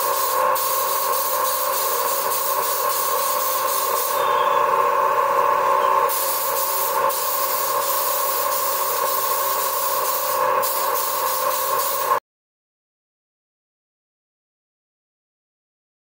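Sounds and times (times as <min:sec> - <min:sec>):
spray gun hissing: 0:00.0 - 0:04.8, 0:06.0 - 0:12.2
machine hum: 0:00.0 - 0:12.2.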